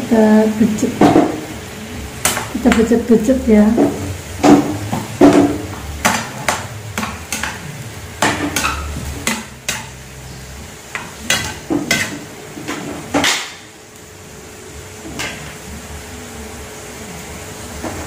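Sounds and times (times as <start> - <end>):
metal spatula scraping a pan: 3.9 - 7.6, 8.2 - 13.1.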